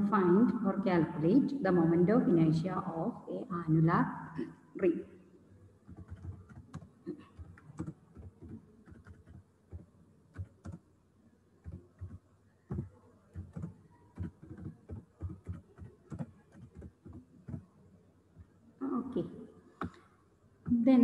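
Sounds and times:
typing on computer keyboard: 0:05.9 - 0:10.8, 0:11.6 - 0:17.7.

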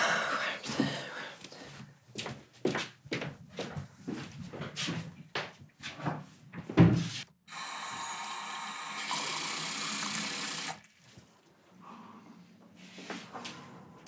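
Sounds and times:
tap water running into glass: 0:07.5 - 0:10.8.

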